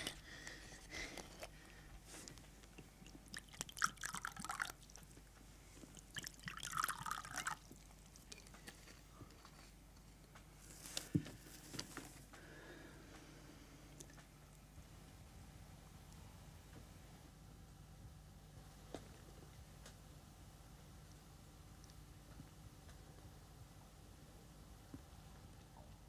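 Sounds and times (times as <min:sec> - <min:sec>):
liquor gurgling into glass: 0:03.4 - 0:04.8, 0:06.1 - 0:07.7.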